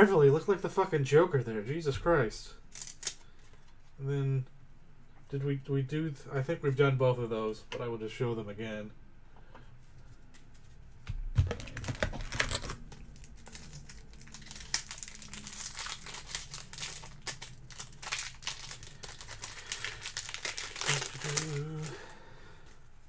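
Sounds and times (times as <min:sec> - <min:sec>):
packaging crinkling and rustling: 0:11.3 - 0:22.8.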